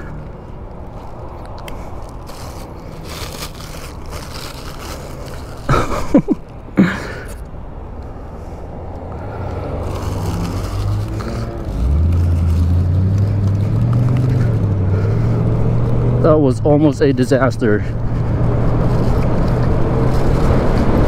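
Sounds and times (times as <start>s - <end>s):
low vehicle hum: 0.0s - 21.0s
street traffic: 0.0s - 21.0s
scraping with squeaks: 9.8s - 15.2s, 18.1s - 21.0s.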